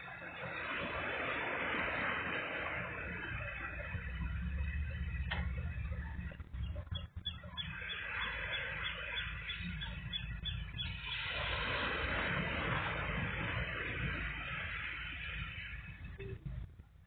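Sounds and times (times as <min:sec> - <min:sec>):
wind rumbling on microphone: 0:00.0 - 0:17.0
steady hiss: 0:07.8 - 0:17.0.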